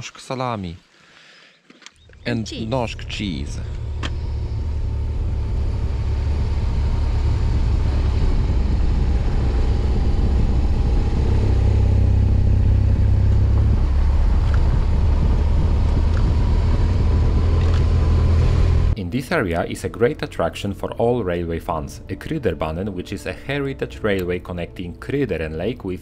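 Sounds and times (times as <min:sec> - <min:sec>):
motorcycle engine rumble: 0:02.0 - 0:19.0.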